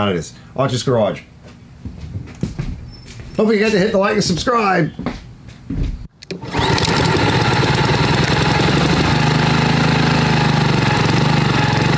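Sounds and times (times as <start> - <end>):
lawn mower engine running: 6.2 - 11.9.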